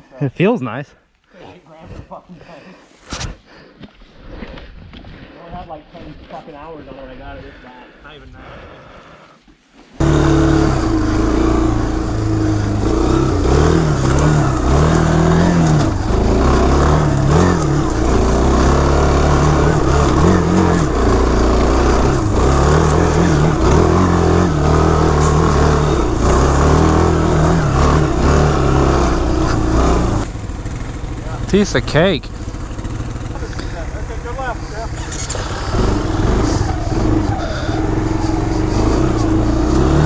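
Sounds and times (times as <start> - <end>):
atv engine revving: 10.0 - 40.0.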